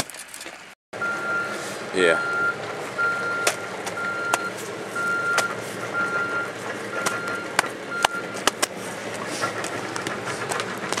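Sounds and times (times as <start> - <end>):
backup alarm beeping: 1.0 - 8.4.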